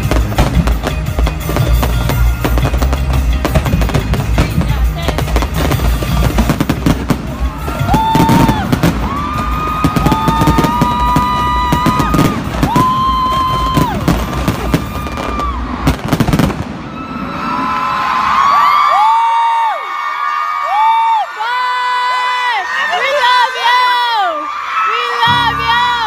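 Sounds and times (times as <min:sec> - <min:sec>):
fireworks crackling and banging: 0:00.0 - 0:17.7.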